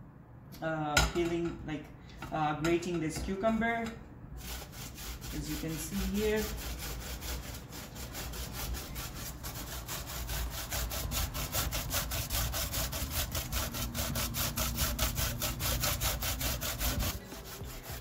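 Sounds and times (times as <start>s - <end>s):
cucumber grating on grater: 4.4s - 18.0s.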